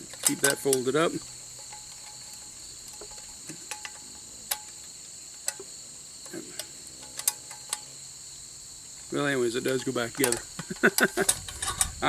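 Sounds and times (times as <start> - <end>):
insects chirring: 0.0 - 12.0
metal latch clicks: 6.5 - 7.9, 9.6 - 12.0.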